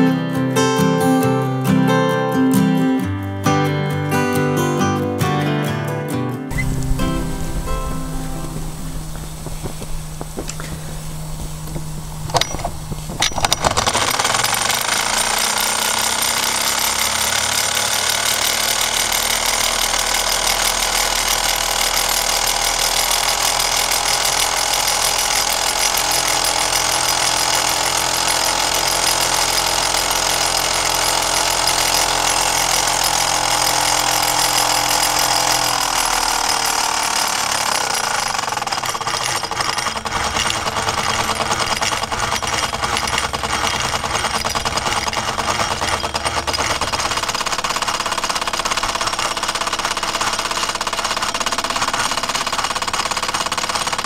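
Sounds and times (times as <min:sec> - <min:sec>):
model steam engine chattering: 0:06.5 - 0:54.0
rattling vibration: 0:06.5 - 0:54.0.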